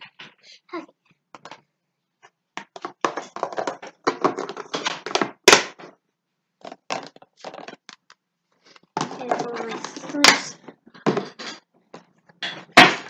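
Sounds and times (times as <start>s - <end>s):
plastic lids clicking and rattling: 2.6s - 6.0s, 6.6s - 8.2s.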